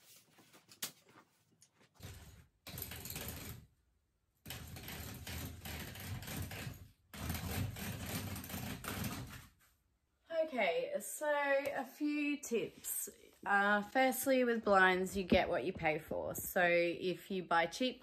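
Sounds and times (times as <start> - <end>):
roller blind clicking into brackets: 2.0 - 3.7.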